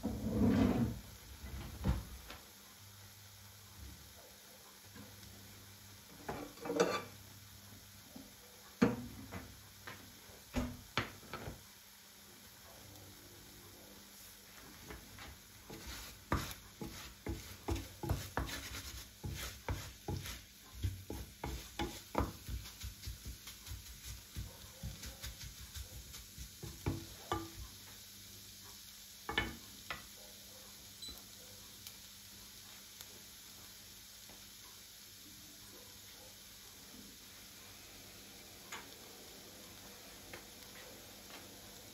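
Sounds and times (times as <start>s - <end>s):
faint sizzle: 0.0s - 41.9s
utensil knocking in frying pan: 8.8s - 9.5s, 10.5s - 11.6s, 14.9s - 28.0s, 29.3s - 30.1s.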